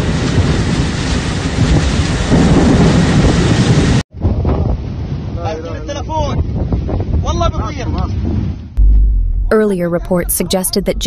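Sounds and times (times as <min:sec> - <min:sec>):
storm wind and rain on microphone: 0:00.0 - 0:08.8.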